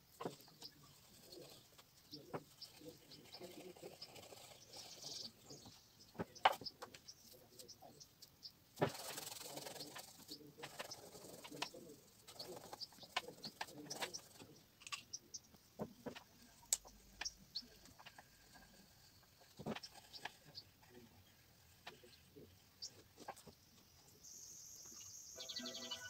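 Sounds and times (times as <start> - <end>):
oil pastel scratching on paper: 2.4 - 5.6, 8.8 - 14.5
small ticks and taps: 14.8 - 18.2.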